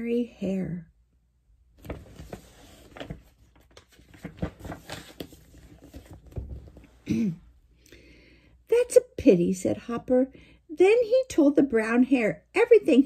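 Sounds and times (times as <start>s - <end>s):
paper page rustling: 1.8s - 7.0s.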